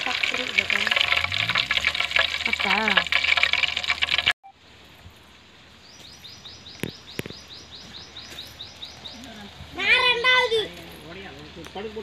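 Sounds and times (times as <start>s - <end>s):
fish deep-frying in hot oil: 0.0s - 4.4s
bird chirping: 5.8s - 9.6s.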